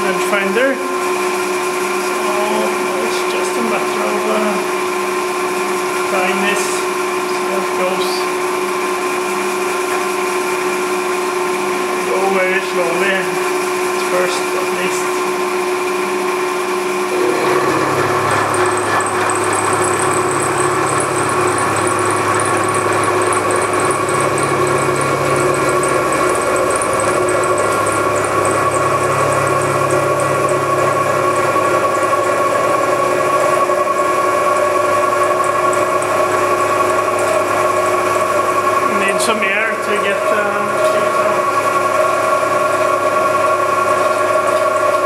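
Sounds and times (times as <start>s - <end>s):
machine hum: 0.0s - 45.0s
milling cutter cutting metal: 17.0s - 45.0s.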